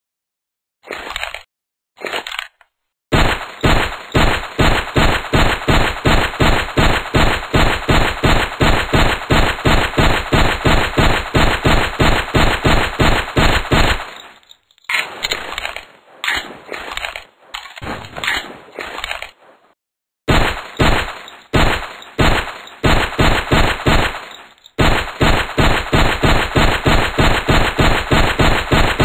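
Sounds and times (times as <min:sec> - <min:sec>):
pistol shots: 0:03.1 - 0:19.0, 0:20.3 - 0:29.0
short bursts of noise: 0:03.1 - 0:19.6.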